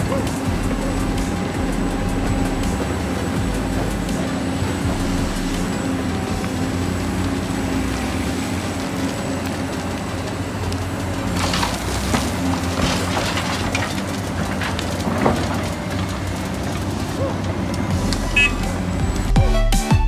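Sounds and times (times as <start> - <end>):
low mechanical drone: 0.0 - 19.7
scraping crackling clicks: 6.3 - 18.8.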